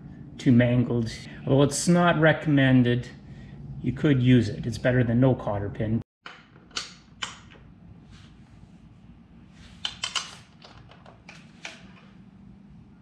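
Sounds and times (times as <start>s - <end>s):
hand tools clicking and tapping: 9.8s - 11.8s.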